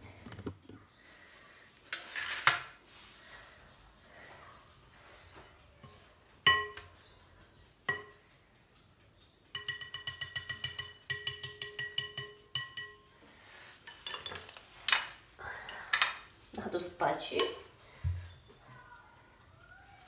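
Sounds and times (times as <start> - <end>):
whisk clinking in ceramic bowl: 9.6 - 13.0.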